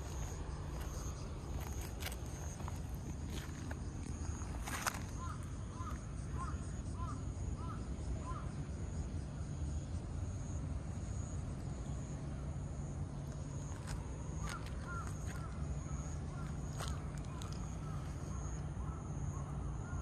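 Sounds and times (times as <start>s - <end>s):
low outdoor rumble: 0.0s - 20.0s
bird calling: 4.1s - 8.6s, 14.3s - 20.0s.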